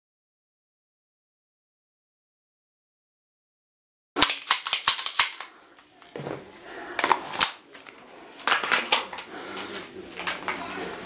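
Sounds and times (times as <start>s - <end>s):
handgun metallic clicks: 4.2s - 5.5s.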